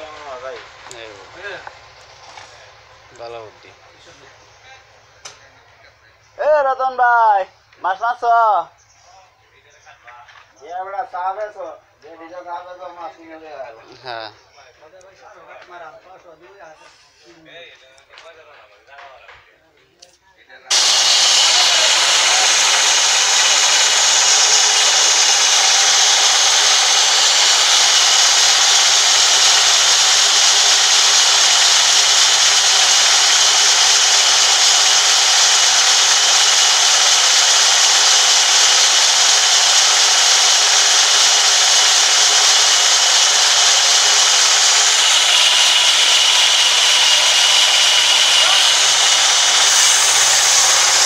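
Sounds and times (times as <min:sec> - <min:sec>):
band saw cutting log: 0:20.7 - 0:51.0.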